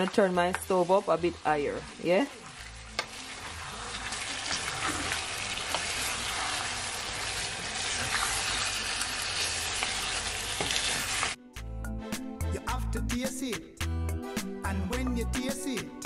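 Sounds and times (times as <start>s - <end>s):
chicken sizzling in a pan: 0.0s - 11.4s.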